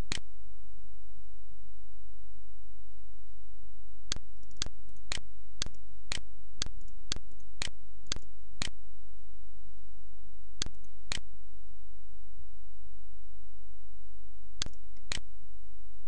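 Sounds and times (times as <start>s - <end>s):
sharp clicks: 0.0s - 0.2s, 4.1s - 8.7s, 10.6s - 11.2s, 14.6s - 15.2s
low electrical hum: 0.0s - 16.0s.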